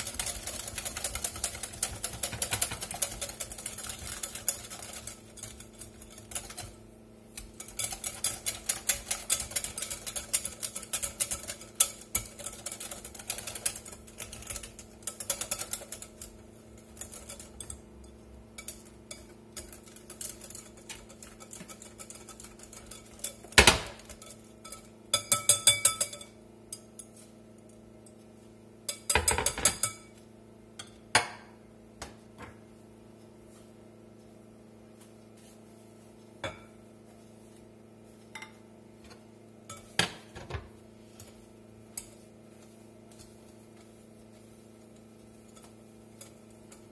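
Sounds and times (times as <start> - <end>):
whisk clattering against glass bowl: 0.0 - 27.1, 28.8 - 30.2, 41.1 - 46.9.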